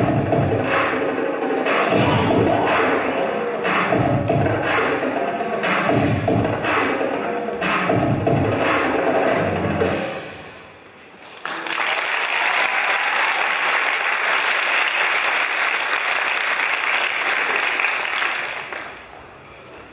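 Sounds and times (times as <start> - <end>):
audience applauding: 11.2 - 19.1.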